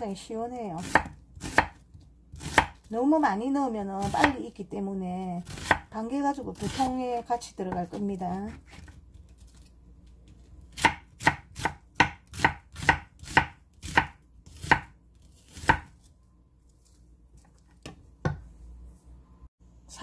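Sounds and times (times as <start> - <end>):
knife chopping on wooden board: 0.8 - 2.9, 5.4 - 5.9, 10.7 - 16.0.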